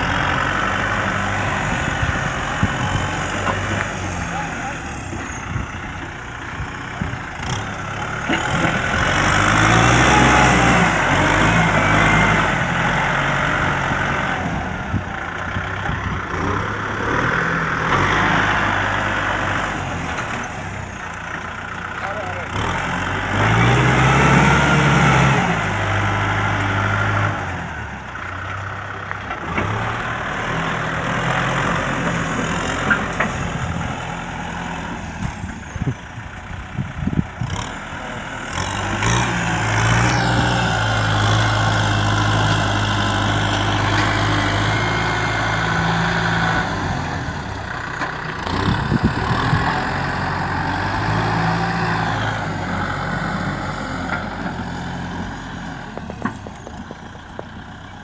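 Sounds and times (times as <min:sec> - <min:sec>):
tractor diesel engine under load: 0:00.0 - 0:58.0.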